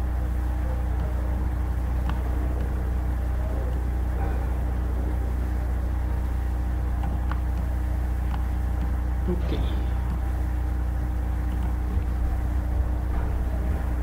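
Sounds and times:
low electrical hum: 0:00.0 - 0:14.0.

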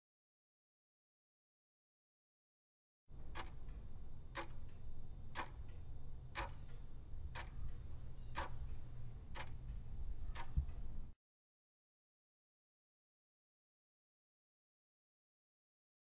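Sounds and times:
clock ticking: 0:03.1 - 0:11.2
steady low hum: 0:03.1 - 0:11.2.

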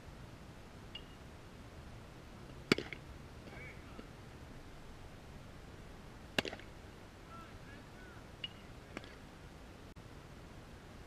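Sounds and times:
baseball popping into mitt: 0:02.7 - 0:03.0, 0:06.4 - 0:06.7.

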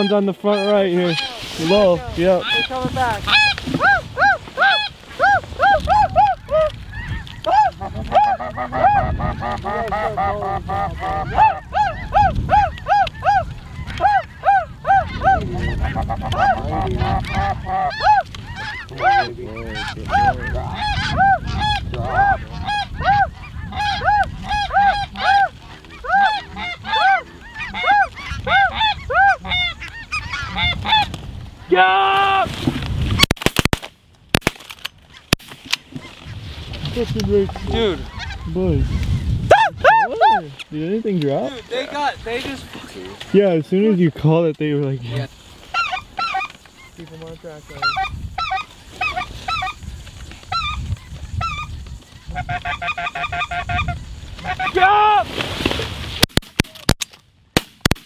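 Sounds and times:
snow geese honking: 0:00.0 - 0:31.8, 0:37.3 - 0:40.4, 0:45.1 - 0:55.2
low wind rumble: 0:00.8 - 0:33.3, 0:34.0 - 0:44.2, 0:45.0 - 0:56.2.

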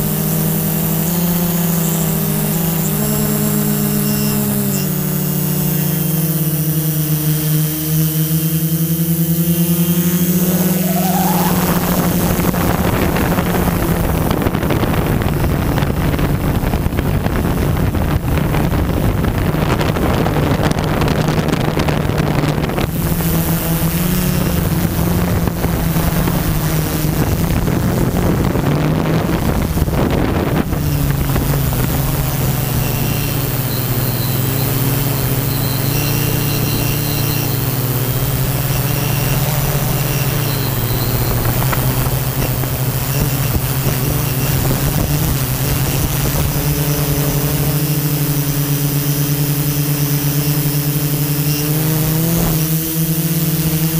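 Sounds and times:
drone motors humming: 0:00.0 - 0:53.9
wind noise: 0:10.1 - 0:51.2.

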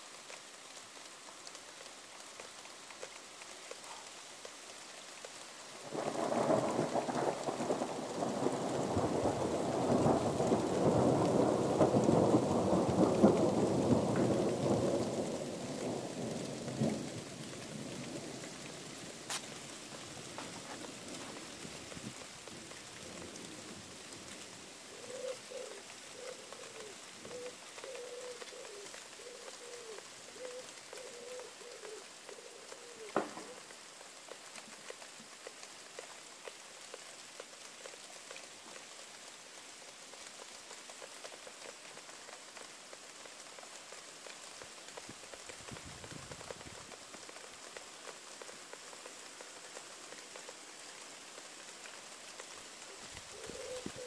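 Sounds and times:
steady rain falling: 0:00.0 - 0:54.0
bird cooing: 0:24.9 - 0:33.8, 0:52.8 - 0:54.0.

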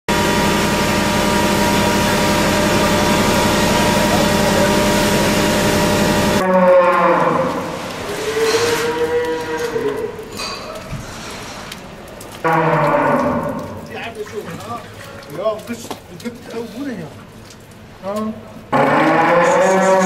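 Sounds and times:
machine hum: 0:00.1 - 0:10.5
cattle mooing: 0:01.7 - 0:10.6, 0:12.4 - 0:13.9, 0:18.7 - 0:20.0.

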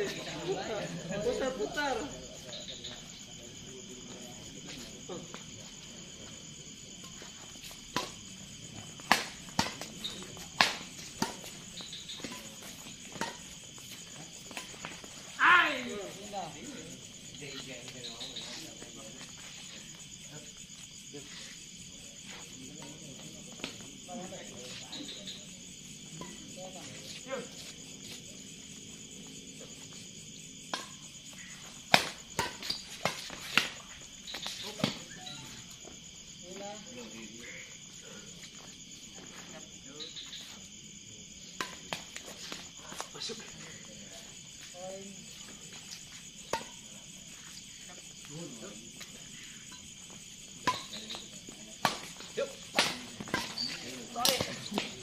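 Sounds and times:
insects chirring: 0:00.0 - 0:55.0
rackets hitting shuttlecock: 0:09.0 - 0:13.6, 0:31.8 - 0:35.1, 0:50.6 - 0:55.0.

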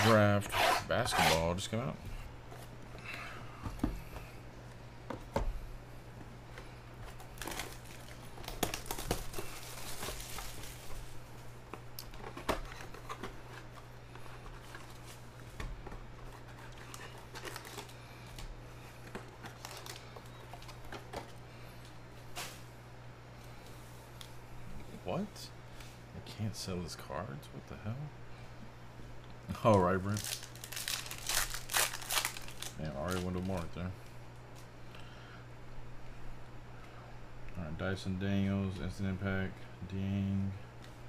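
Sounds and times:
steady low hum: 0:00.0 - 0:41.0
foil packs rustling: 0:07.1 - 0:11.3, 0:12.2 - 0:21.4, 0:29.5 - 0:33.9
cardboard box crinkling and tearing: 0:30.1 - 0:33.4.

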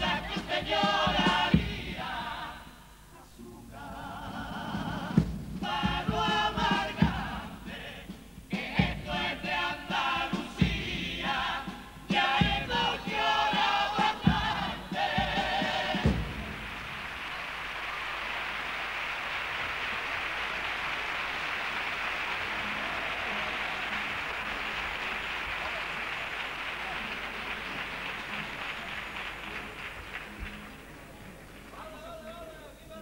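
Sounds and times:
chorus singing in harmony: 0:00.0 - 0:17.0
low drum thumps: 0:04.8 - 0:09.5, 0:10.2 - 0:17.1.

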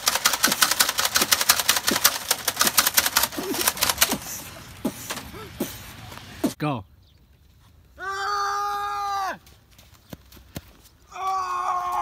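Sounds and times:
toy gun clicking: 0:00.0 - 0:04.3.

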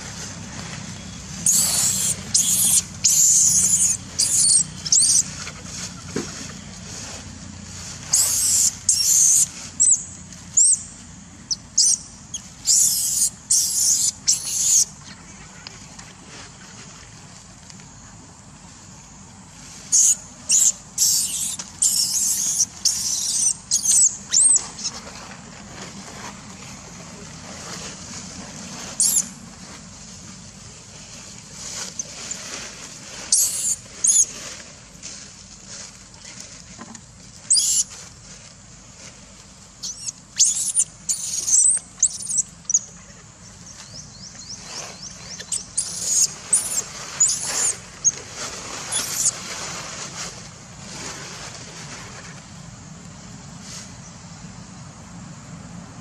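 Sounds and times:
baby monkey squealing: 0:01.4 - 0:05.3, 0:08.1 - 0:10.8, 0:11.5 - 0:14.9, 0:19.9 - 0:25.0, 0:29.0 - 0:29.3, 0:33.3 - 0:34.3, 0:37.5 - 0:37.9, 0:39.8 - 0:42.9, 0:45.3 - 0:47.8, 0:48.9 - 0:49.4.

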